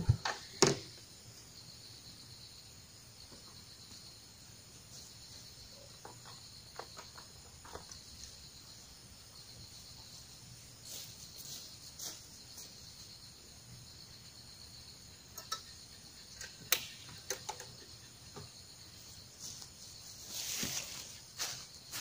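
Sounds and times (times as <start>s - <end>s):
insects chirring: 0.0s - 22.0s
rustling: 19.0s - 22.0s.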